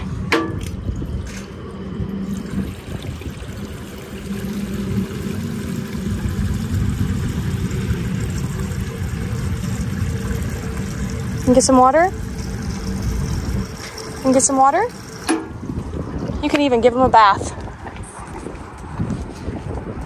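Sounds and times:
fountain water splashing into bowl: 0:02.3 - 0:15.5.

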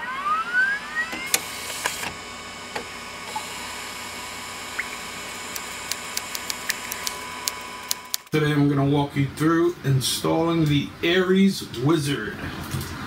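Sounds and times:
sharp clicks: 0:04.8 - 0:08.3.

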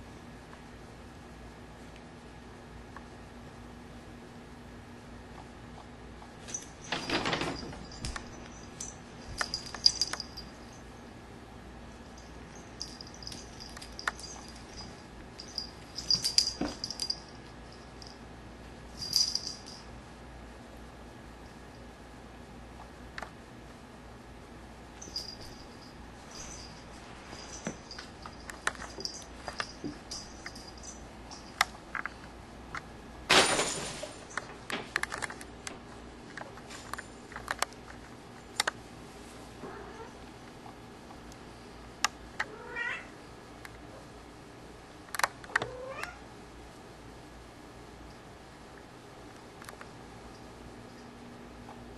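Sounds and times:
collar tag jingling: 0:06.5 - 0:11.0, 0:12.0 - 0:18.2, 0:19.0 - 0:19.9, 0:25.0 - 0:31.6
cats scuffling on carpet: 0:25.1 - 0:30.7.

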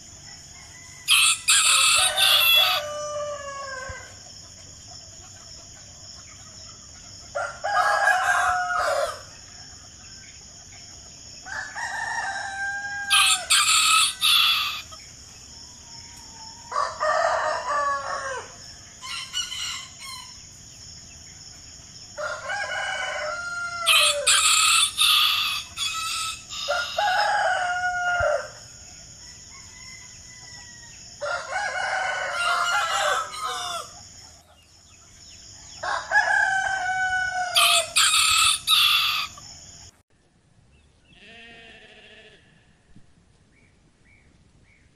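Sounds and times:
rooster crowing: 0:00.2 - 0:04.2, 0:07.3 - 0:09.4, 0:11.5 - 0:15.0, 0:15.8 - 0:20.4, 0:22.2 - 0:34.1, 0:35.4 - 0:39.5.

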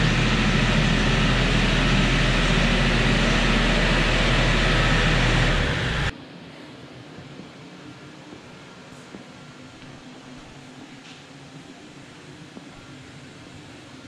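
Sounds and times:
tractor diesel engine running: 0:00.0 - 0:06.1.

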